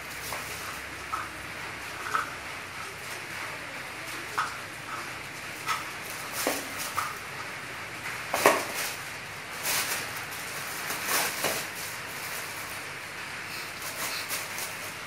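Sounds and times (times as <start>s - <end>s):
steady hiss: 0.0s - 15.0s
toy cart knocking on concrete: 8.1s - 8.8s.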